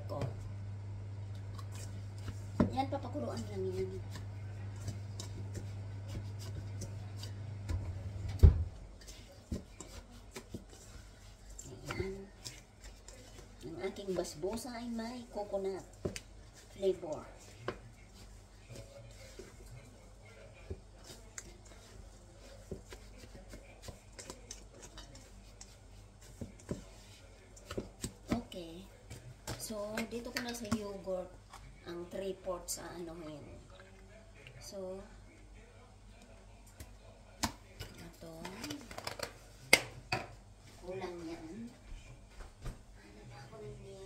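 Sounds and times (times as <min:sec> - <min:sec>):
whisk scraping in a steel bowl: 0:16.5 - 0:30.9.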